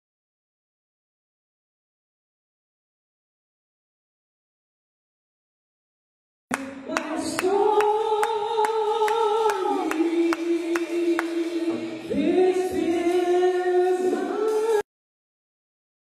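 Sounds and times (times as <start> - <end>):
slow gospel singing: 6.5 - 14.8.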